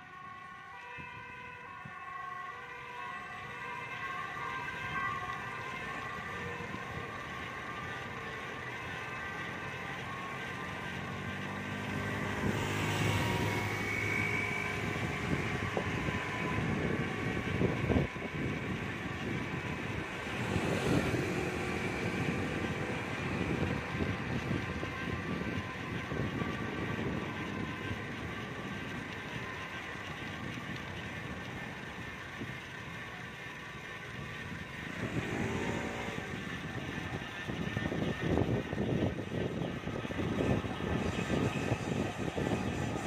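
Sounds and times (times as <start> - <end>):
street noise rush: 0.0 - 43.0
vehicle passing: 19.2 - 28.3, 34.8 - 43.0.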